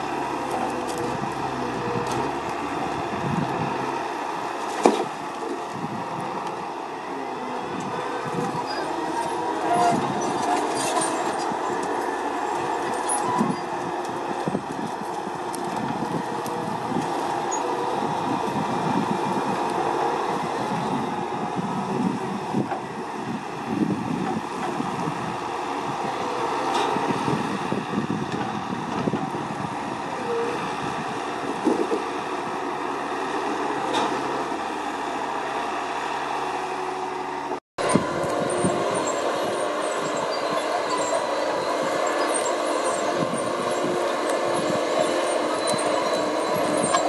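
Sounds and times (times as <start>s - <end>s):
diesel engine running: 0.0s - 47.0s
hydraulic crane loading logs: 0.0s - 47.0s.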